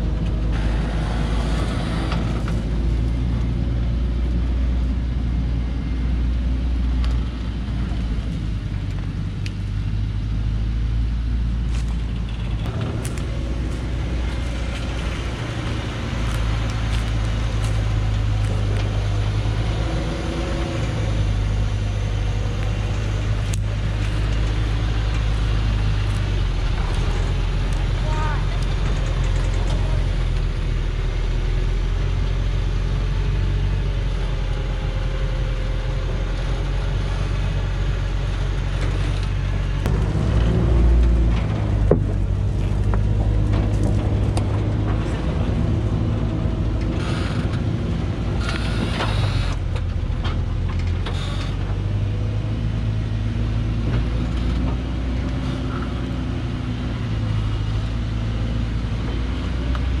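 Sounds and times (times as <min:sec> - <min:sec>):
diesel truck engine rumbling: 0:00.0 - 1:00.0.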